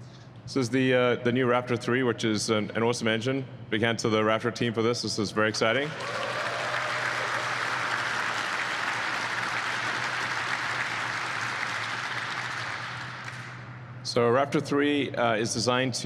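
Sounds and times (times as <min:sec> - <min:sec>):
audience applauding: 0:05.8 - 0:13.6.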